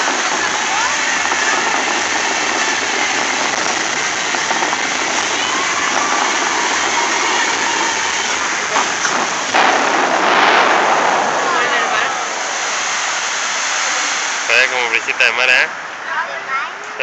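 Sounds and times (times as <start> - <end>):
fountain water jets crashing down: 0.0 - 16.0.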